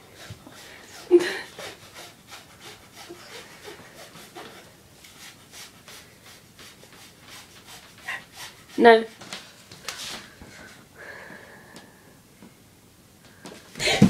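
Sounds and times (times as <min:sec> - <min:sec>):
person breathing fast and hard: 0:10.1 - 0:12.2.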